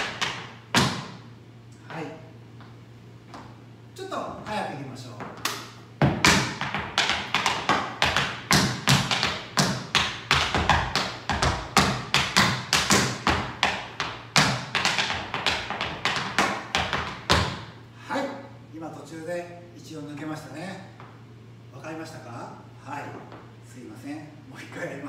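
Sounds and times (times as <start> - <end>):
tap shoes on wooden floor: 0.0 - 1.2, 2.6 - 3.6, 5.2 - 17.7.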